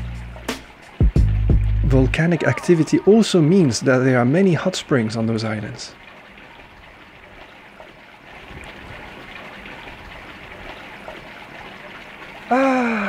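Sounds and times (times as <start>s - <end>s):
water pouring into a bath: 3.3s - 13.0s.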